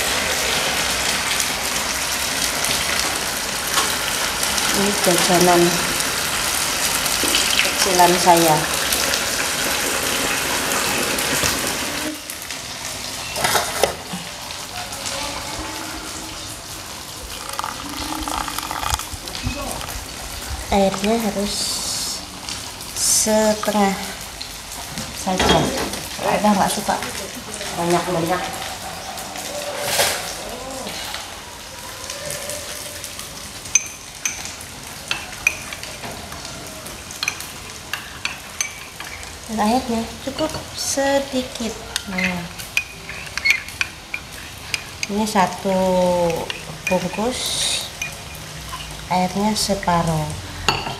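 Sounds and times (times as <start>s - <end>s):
pans sizzling: 0.0s - 50.9s
water splashing into cup: 17.2s - 20.2s
teaspoon clinking in ceramic cup: 48.0s - 48.4s.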